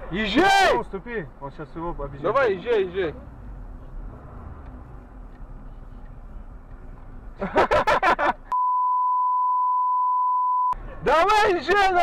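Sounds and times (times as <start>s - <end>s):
censor bleep: 8.5s - 10.8s.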